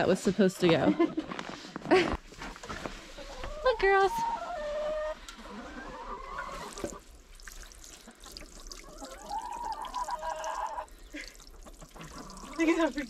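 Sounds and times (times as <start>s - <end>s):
hens calling: 2.8s - 7.1s, 8.1s - 12.8s
water pouring into bowl: 6.5s - 13.0s.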